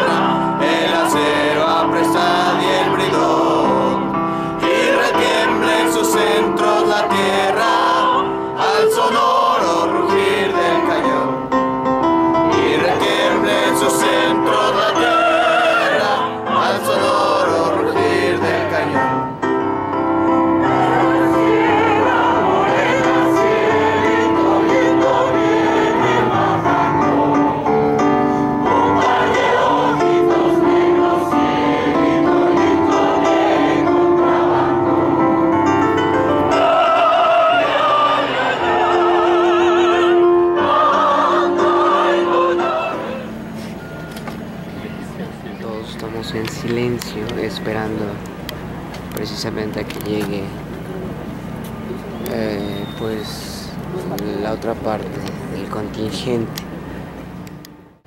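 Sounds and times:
large choir singing: 0.0s - 44.0s.

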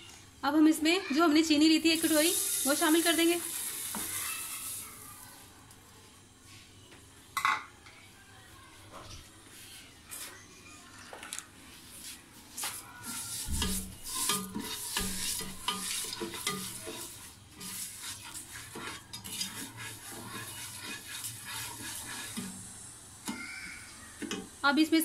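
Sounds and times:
spoon scraping a pot: 12.7s - 22.6s.

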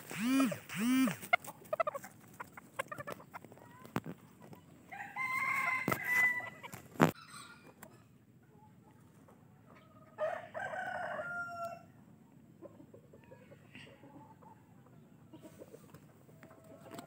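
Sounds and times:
chickens clucking: 0.0s - 17.0s
rooster crowing: 4.9s - 6.6s, 10.2s - 11.9s.

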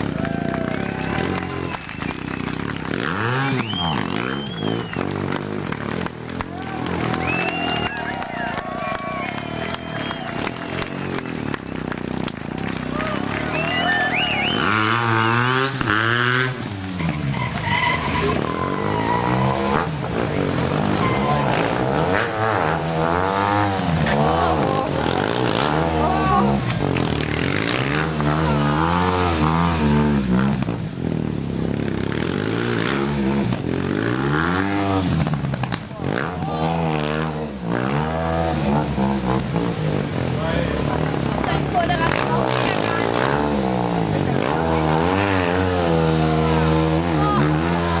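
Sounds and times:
motorcycle engine revving: 0.0s - 48.0s
tyre squeal: 17.0s - 19.9s, 20.8s - 21.6s.

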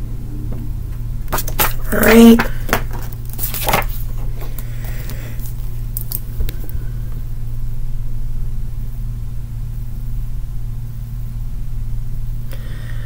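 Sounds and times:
steady low hum: 0.0s - 13.0s
paper rustling: 1.3s - 4.6s.

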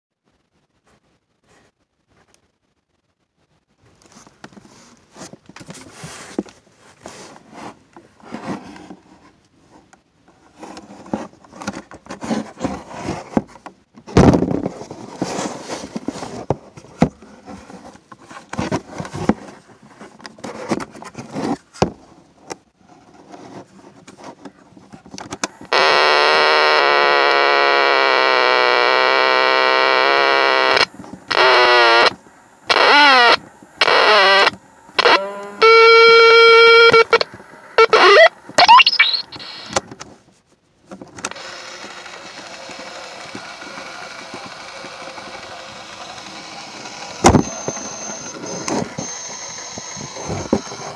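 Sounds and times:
loud buzzing drone from speaker: 25.6s - 39.8s, 41.3s - 50.9s.

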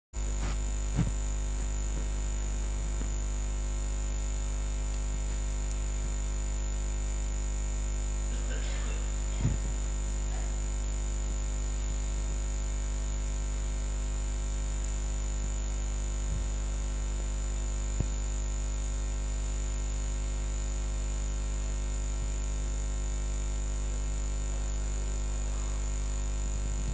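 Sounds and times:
high thin whine: 0.2s - 4.2s, 8.1s - 10.9s
electrical mains hum: 0.2s - 26.9s
soft thumps: 0.4s - 1.3s.

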